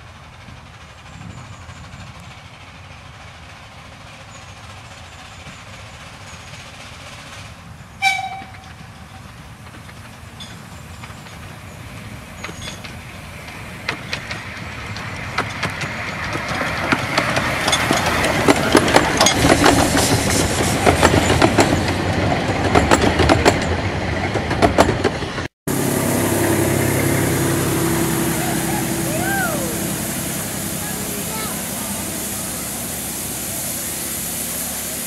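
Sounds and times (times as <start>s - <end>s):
steam train passing: 0.0s - 35.0s
wheels clicking over rail joints: 0.2s - 25.5s.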